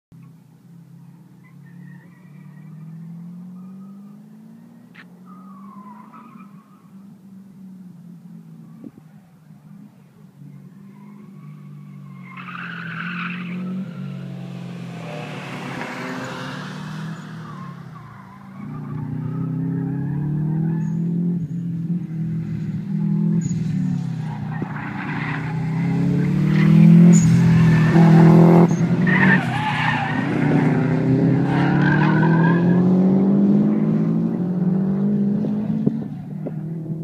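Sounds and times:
rally car engines revving: 1.4 - 37.0
tyre squeal: 5.2 - 7.0, 15.0 - 21.6, 23.4 - 32.9.

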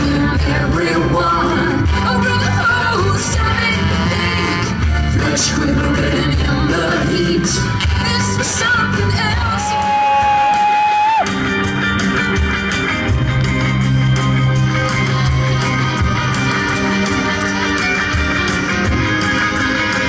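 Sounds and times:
woman singing: 0.0 - 9.9
bass line: 0.0 - 20.0
electric guitar: 0.0 - 20.0
live rock band: 0.0 - 20.0.

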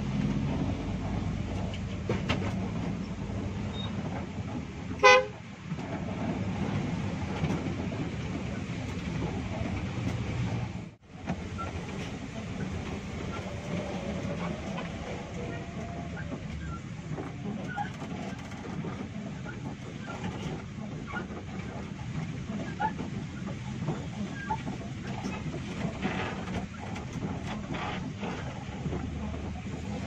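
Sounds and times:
bus engine and road rumble: 0.0 - 30.0
vehicle horn toot: 5.0 - 5.3.

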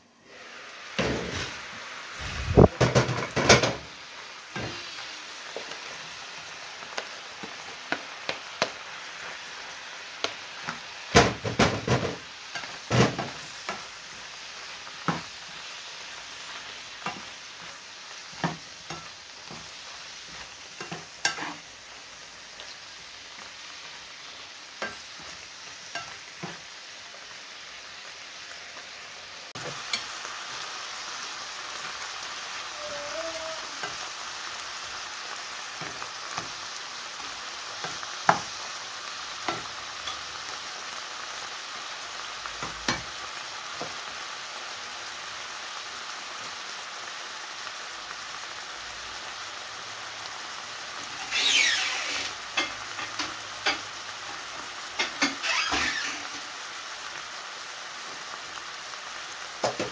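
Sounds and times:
food sizzling in frying pan: 0.0 - 59.9
spatula scraping pan: 16.5 - 21.8, 24.8 - 26.7, 55.0 - 56.4.

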